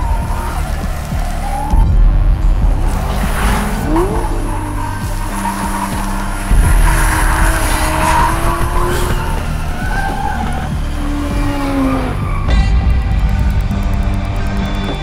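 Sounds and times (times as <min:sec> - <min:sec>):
car engines running hard: 0:00.0 - 0:12.5
background music: 0:00.0 - 0:15.0
tyres squealing: 0:02.8 - 0:12.5.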